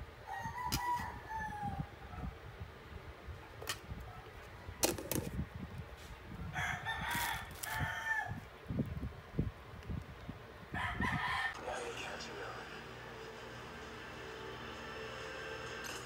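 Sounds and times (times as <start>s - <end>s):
rooster crowing: 0.2s - 2.2s, 6.5s - 8.5s, 10.7s - 11.6s.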